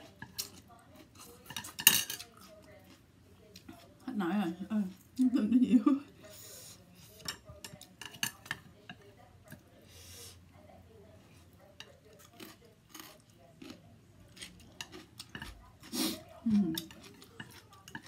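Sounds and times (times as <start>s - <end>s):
utensils clicking on plate: 0.1s - 2.5s, 7.2s - 9.0s, 16.6s - 18.0s
mouth noises eating noodles: 15.8s - 16.9s.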